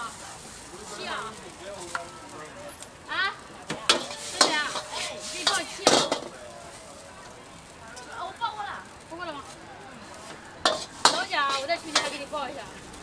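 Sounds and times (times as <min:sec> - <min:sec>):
frying sizzle: 0:00.0 - 0:13.0
metal ladle clanking against wok: 0:03.7 - 0:06.4, 0:10.6 - 0:12.2.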